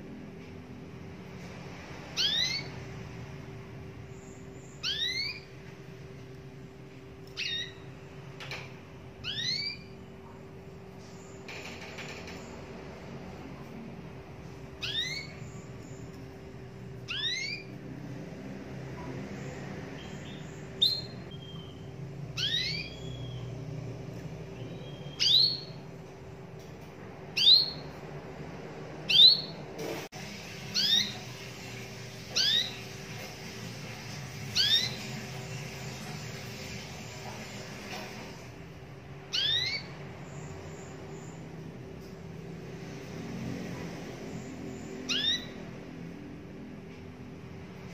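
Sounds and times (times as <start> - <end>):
canary call notes: 4.7 - 5.5, 9.2 - 10.0, 17.1 - 17.7, 22.4 - 23.5, 30.7 - 33.0, 34.5 - 36.9, 39.3 - 39.9, 45.0 - 45.7.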